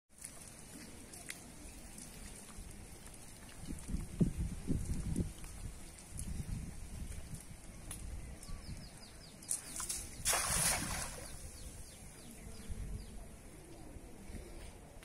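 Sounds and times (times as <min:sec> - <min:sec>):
net splashing on water: 0:09.7 - 0:11.6.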